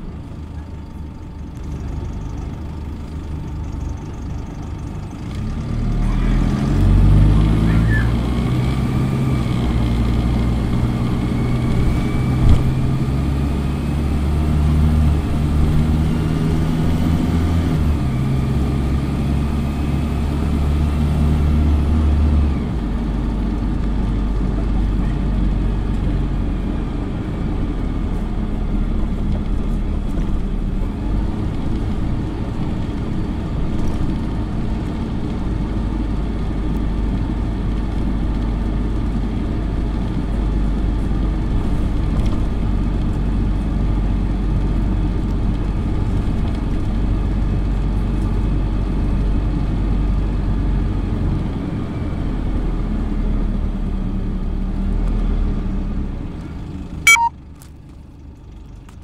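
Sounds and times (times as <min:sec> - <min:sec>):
bus diesel engine pulling hard: 0:00.0 - 0:59.0
thin high whine: 0:57.1 - 0:57.3.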